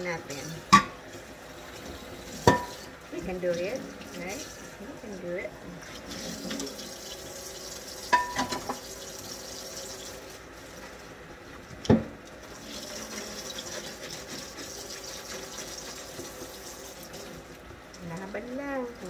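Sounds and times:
tap water running into sink: 0:00.0 - 0:04.8, 0:05.8 - 0:11.0, 0:11.6 - 0:18.4
dishes clinking: 0:00.7 - 0:01.0, 0:02.4 - 0:02.8, 0:08.1 - 0:08.8.

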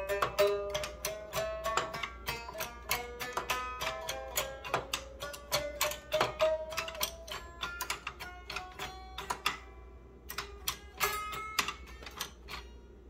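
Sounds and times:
clavichord notes clicking and ringing: 0:00.0 - 0:12.8.

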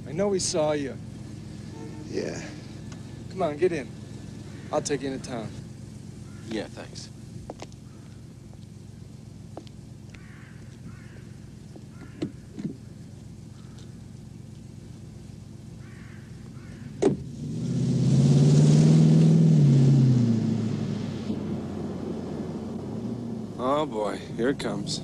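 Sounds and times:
car engine idling: 0:00.0 - 0:17.4, 0:20.0 - 0:25.0
road noise: 0:00.0 - 0:25.0
car door slamming shut: 0:17.0 - 0:17.2
car engine revving: 0:17.0 - 0:25.0.

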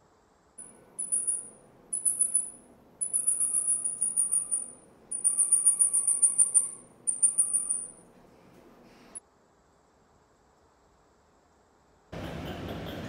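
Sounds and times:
mouse lemur high trilling calls: 0:00.6 - 0:08.0.

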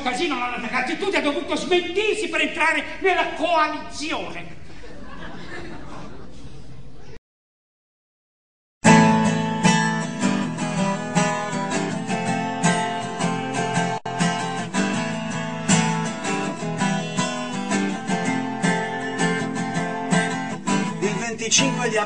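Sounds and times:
strummed acoustic guitar: 0:08.8 - 0:22.0.

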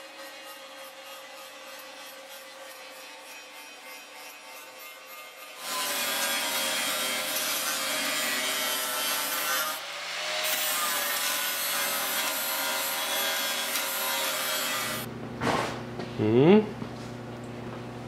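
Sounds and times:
grinding wheel hissing on metal: 0:00.0 - 0:06.4, 0:11.4 - 0:15.1
electric grinder motor whine: 0:11.8 - 0:15.1.

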